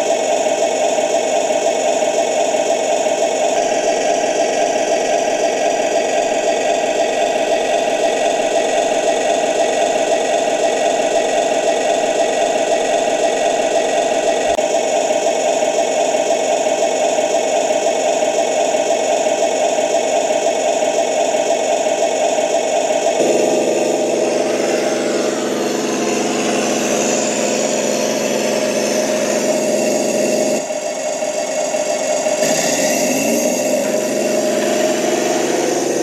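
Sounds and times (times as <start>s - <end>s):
simulated tank engine: 0.0s - 36.0s
electric motors whining: 1.8s - 14.6s, 22.9s - 36.0s.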